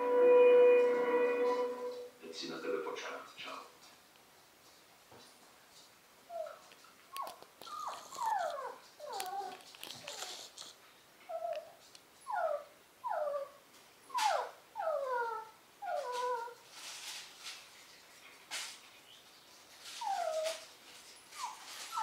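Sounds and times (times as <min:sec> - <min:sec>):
puppy whimpering: 0:06.3 - 0:16.6, 0:19.9 - 0:20.7, 0:21.3 - 0:22.0.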